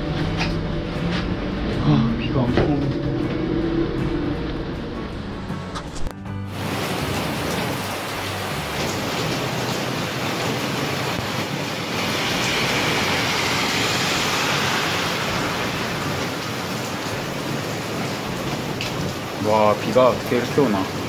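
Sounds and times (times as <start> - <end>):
car passing on wet road: 1.6 - 20.9
heavy rain pouring on road: 6.5 - 21.0.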